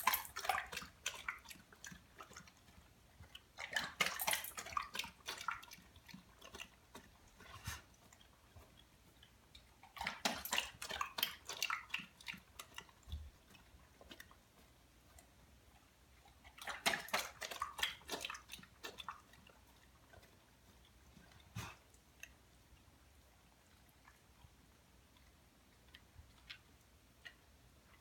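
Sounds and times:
dog biting at water in bowl: 0.0 - 22.0.

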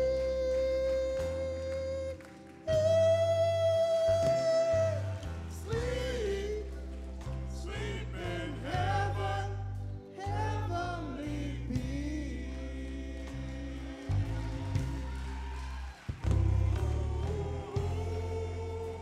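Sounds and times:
person singing: 0.0 - 6.8, 16.2 - 19.0
sustained low bass notes: 2.8 - 19.0.

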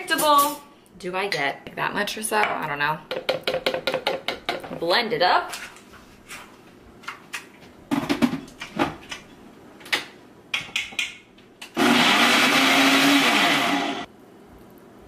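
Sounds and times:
blender running: 11.8 - 14.1.

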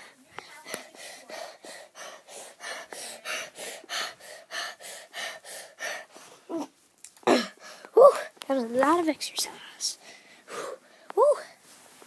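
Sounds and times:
heavy rapid panting: 0.0 - 6.3.

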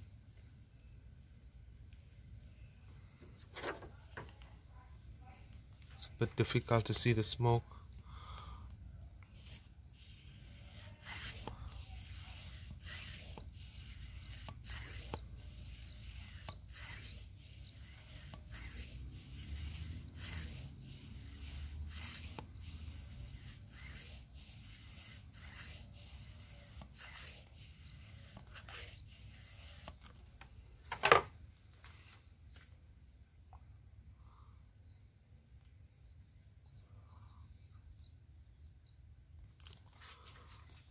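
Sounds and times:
phone being handled: 30.4 - 31.3.

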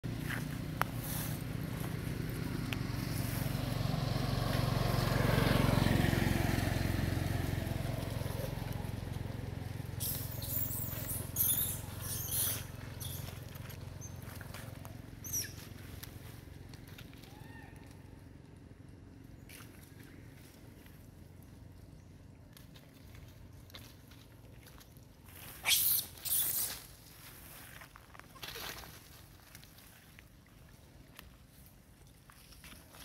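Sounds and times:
vehicle engine passing: 0.0 - 17.3.

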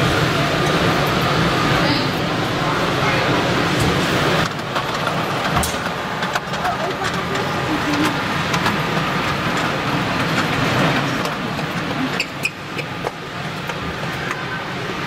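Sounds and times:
busy exhibition hall din: 0.0 - 15.0
sharp clicks and knocks: 3.8 - 14.4.

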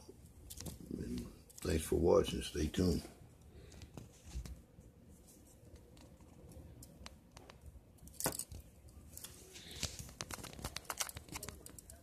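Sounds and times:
handling clicks and rustles: 3.4 - 12.0.

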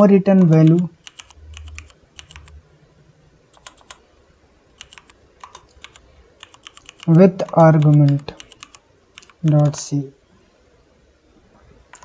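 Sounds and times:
computer keyboard typing: 0.0 - 2.6, 3.6 - 4.0, 4.8 - 9.8.

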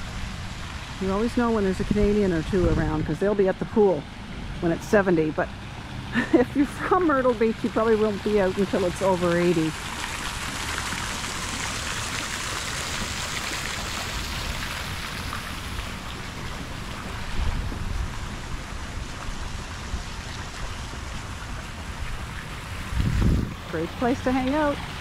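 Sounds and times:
fountain water splashing: 0.0 - 25.0
wind buffeting microphone: 1.0 - 4.6, 14.2 - 25.0.

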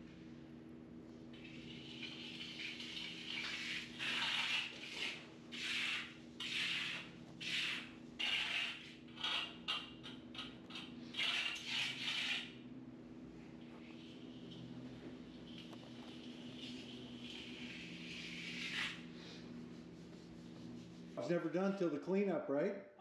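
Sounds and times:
steady low hum: 0.0 - 23.0
trowel scraping concrete: 3.4 - 9.8, 11.2 - 12.6, 17.5 - 19.0.

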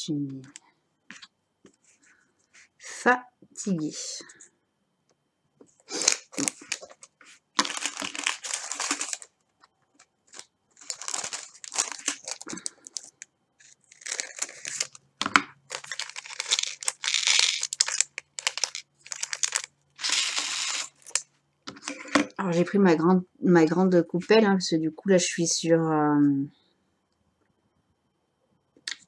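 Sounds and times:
plastic sheet crinkling: 5.9 - 21.3.

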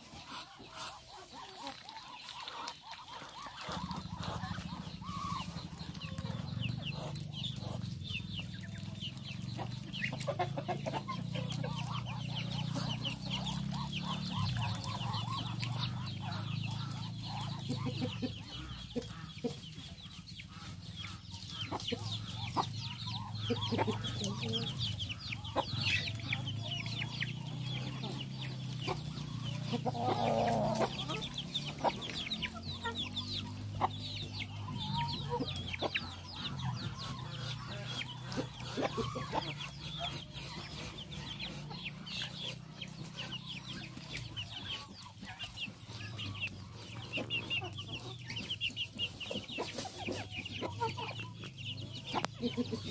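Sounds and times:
chicks peeping: 0.0 - 52.9
hen clucking: 0.0 - 52.9.

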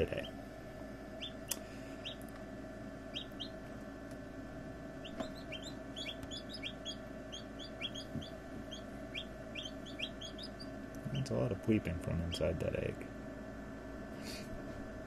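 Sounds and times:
steady low hum: 0.0 - 15.0
chicks peeping: 1.2 - 2.4, 3.1 - 3.7, 5.0 - 11.3.

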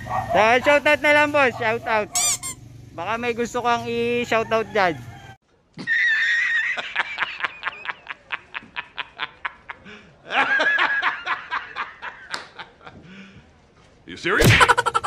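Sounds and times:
person squealing and giggling: 5.8 - 6.7, 14.4 - 15.0.

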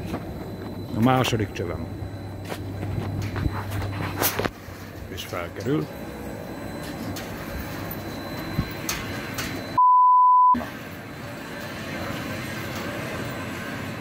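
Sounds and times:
censor bleep: 8.0 - 10.6
outdoor background noise: 10.6 - 14.0.

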